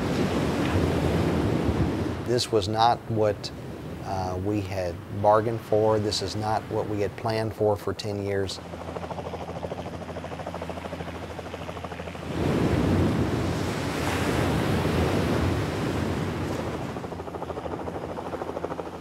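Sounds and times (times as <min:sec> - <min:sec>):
water churning and rushing: 0:00.0 - 0:02.3, 0:12.2 - 0:17.2.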